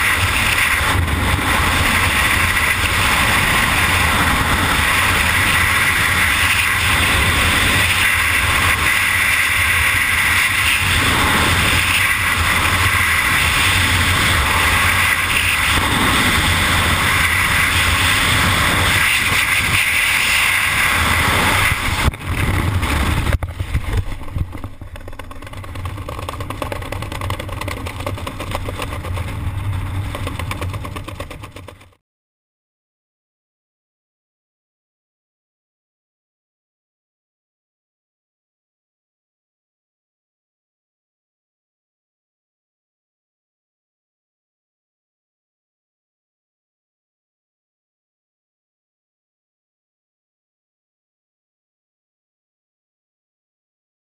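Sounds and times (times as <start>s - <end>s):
freefall wind rush: 0.0s - 31.9s.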